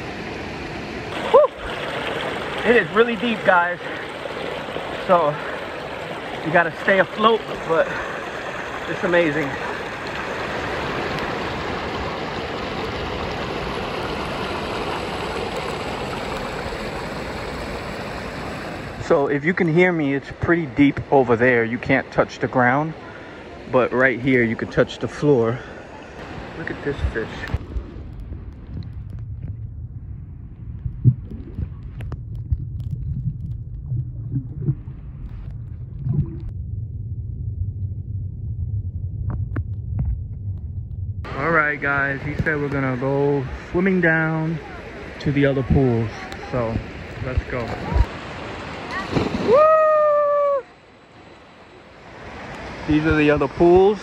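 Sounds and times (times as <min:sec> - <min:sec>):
water rushing over ledges: 0:00.0 - 0:27.6, 0:41.3 - 0:54.0.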